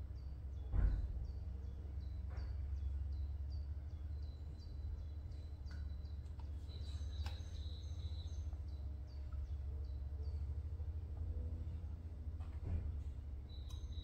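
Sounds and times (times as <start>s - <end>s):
low hum: 0.0s - 14.0s
bird chirping: 0.1s - 10.6s, 13.5s - 14.0s.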